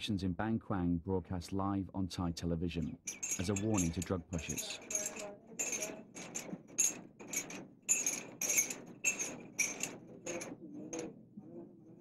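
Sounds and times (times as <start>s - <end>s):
metal chains jangling: 2.9s - 11.1s.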